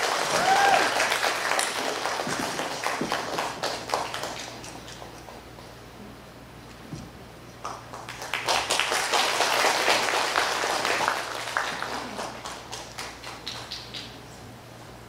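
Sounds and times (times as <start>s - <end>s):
audience applauding: 0.0s - 5.4s, 7.6s - 14.2s.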